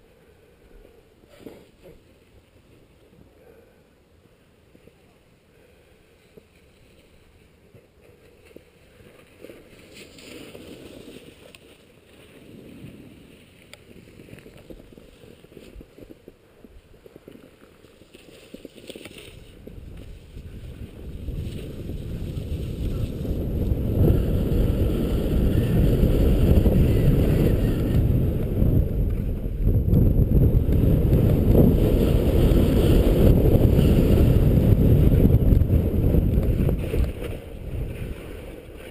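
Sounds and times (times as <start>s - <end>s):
skis scraping on packed snow: 6.4s - 28.6s, 30.4s - 38.9s
wind buffeting microphone: 19.3s - 38.9s.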